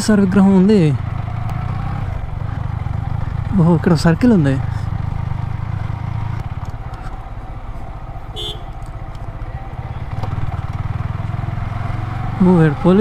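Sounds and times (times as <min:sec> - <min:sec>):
motorcycle engine running: 0:00.0 - 0:13.0
horn toot: 0:08.3 - 0:08.8.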